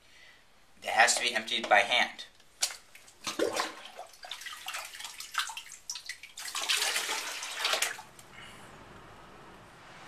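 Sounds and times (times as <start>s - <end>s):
water splashing and sloshing: 2.5s - 8.3s.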